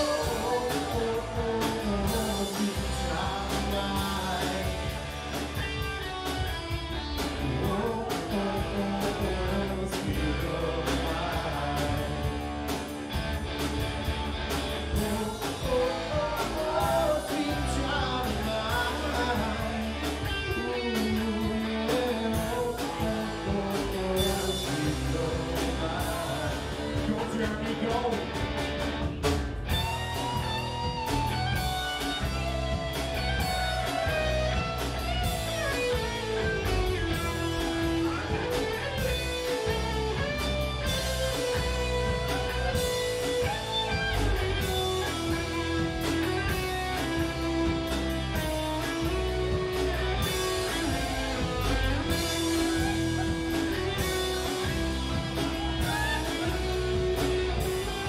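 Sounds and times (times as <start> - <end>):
person singing: 0.0 - 5.1, 7.4 - 12.5, 14.9 - 28.4, 35.3 - 58.0
live band playing: 0.0 - 58.0.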